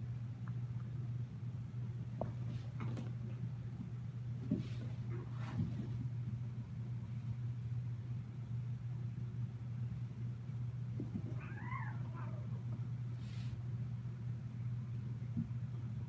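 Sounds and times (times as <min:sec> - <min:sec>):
steady low hum: 0:00.0 - 0:16.0
cat meowing: 0:11.3 - 0:12.6.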